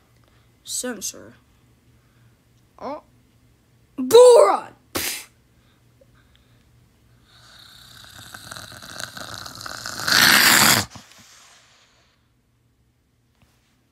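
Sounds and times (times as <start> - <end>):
raspy vocal growl: 7.4 - 11.1
harsh roar: 8.2 - 11.1.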